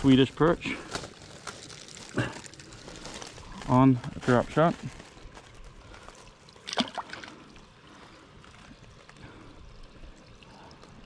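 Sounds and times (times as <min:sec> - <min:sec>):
water lapping against rocks: 0:05.8 - 0:11.0
fish splashing into water: 0:06.4 - 0:07.7.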